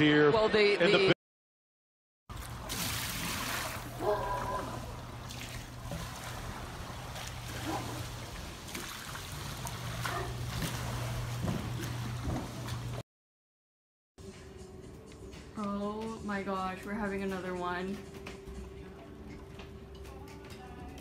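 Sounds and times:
pool water sloshing and splashing: 2.3 - 13.0.

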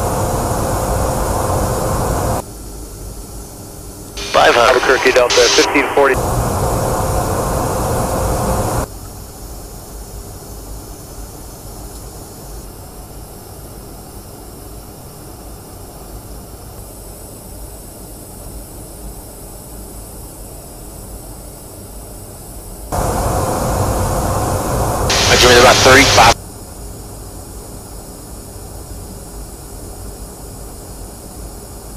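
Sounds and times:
aircraft cabin rumble and hiss: 0.0 - 2.4, 4.2 - 8.9, 22.9 - 26.4
loud noise: 0.0 - 2.4, 4.2 - 8.8, 22.9 - 26.4.

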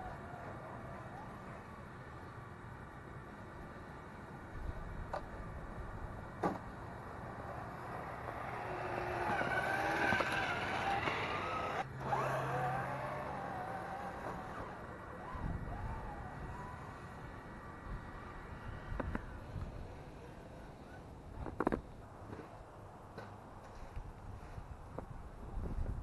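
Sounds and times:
electric motor and gears whining: 7.5 - 20.3.

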